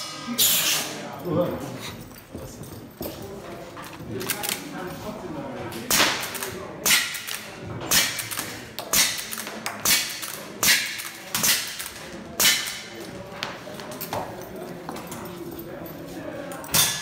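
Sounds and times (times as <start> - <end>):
pellets hitting steel targets: 5.9 - 13.0.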